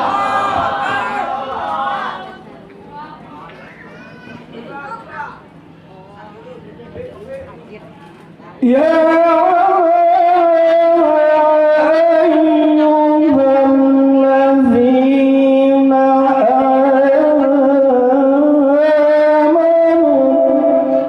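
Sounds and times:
man reciting melodically: 8.6s - 21.0s.

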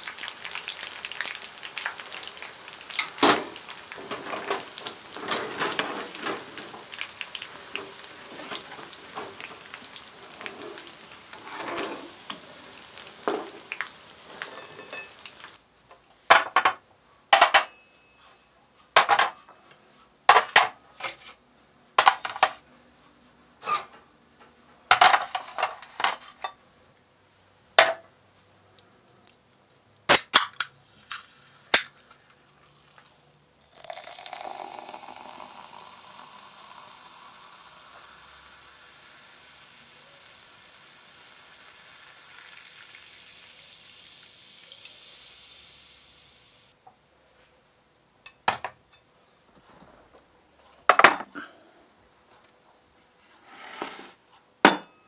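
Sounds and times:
soft drink pouring and fizzing: 0.0s - 15.6s, 31.0s - 46.8s
glass and tableware clinking: 14.3s - 15.4s, 17.4s - 18.4s, 48.2s - 49.1s, 54.6s - 55.0s.

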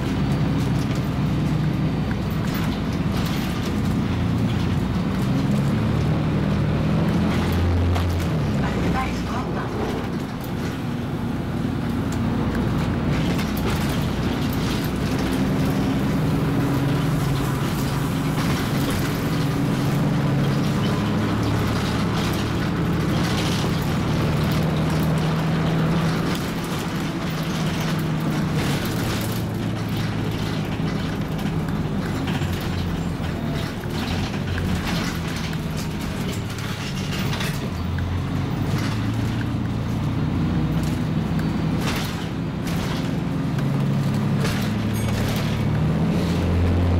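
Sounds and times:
bus diesel engine running: 0.0s - 46.9s
road and body noise: 0.0s - 46.9s.

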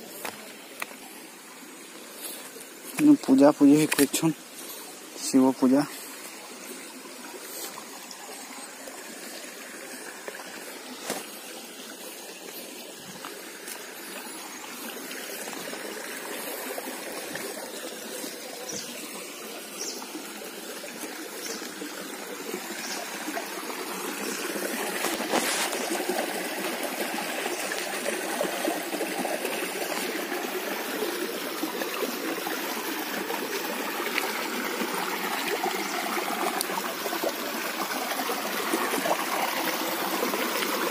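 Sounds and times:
stream trickling over rocks: 0.0s - 40.9s.

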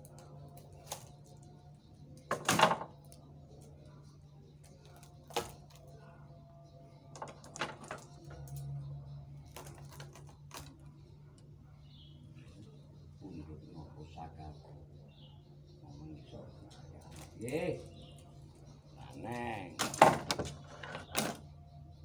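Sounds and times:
wooden and metal knocks: 2.3s - 3.0s, 7.1s - 8.4s, 19.8s - 21.4s
steady low hum: 8.0s - 19.8s.

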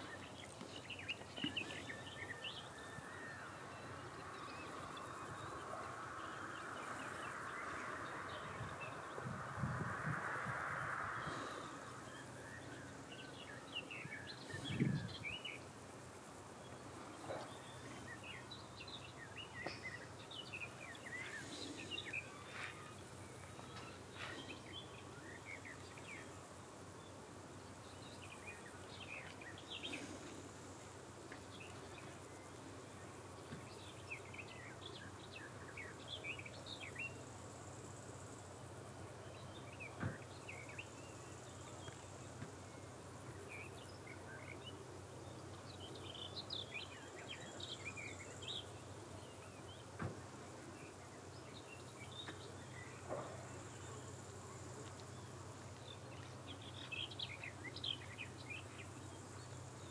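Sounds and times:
small birds chirping: 0.0s - 9.8s, 11.2s - 59.9s
steady background hum: 0.0s - 59.9s.

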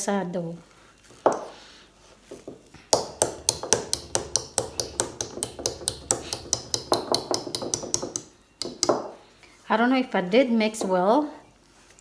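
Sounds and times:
whisk knocking plastic bowl: 3.0s - 9.0s.

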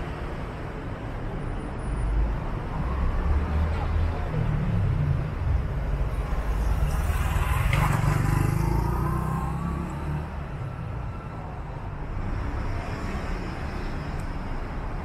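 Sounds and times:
street traffic hum: 0.0s - 15.0s
motor scooter passing by: 6.5s - 10.4s.

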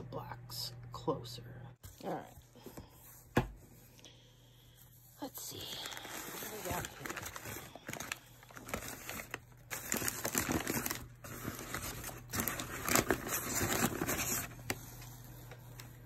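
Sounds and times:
newspaper rustling and crinkling: 5.4s - 16.0s.

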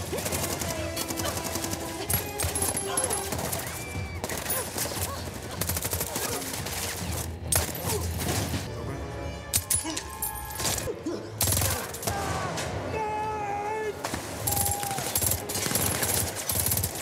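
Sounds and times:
film score music: 0.0s - 17.0s
gunfire bursts: 14.0s - 17.0s.

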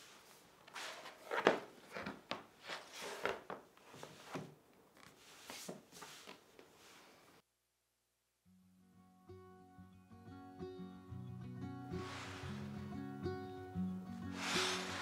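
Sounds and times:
floor mat rustling and rubbing: 0.0s - 7.4s, 11.9s - 12.8s, 14.2s - 15.0s.

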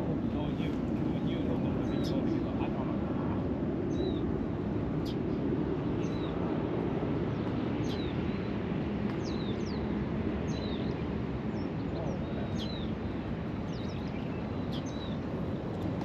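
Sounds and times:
bird chirping: 10.5s - 12.9s, 13.7s - 15.2s.

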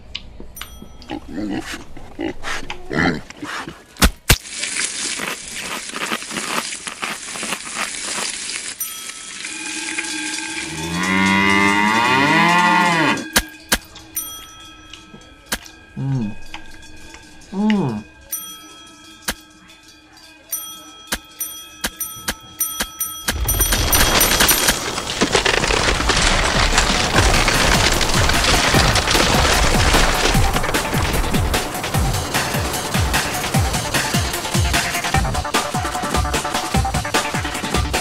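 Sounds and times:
cowbell clanking: 8.8s - 24.9s
cow mooing: 10.6s - 13.3s.

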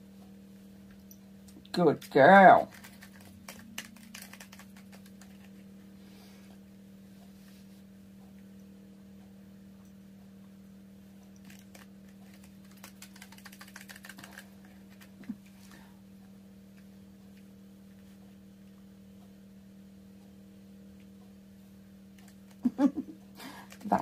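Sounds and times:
low electrical hum: 0.0s - 24.0s.

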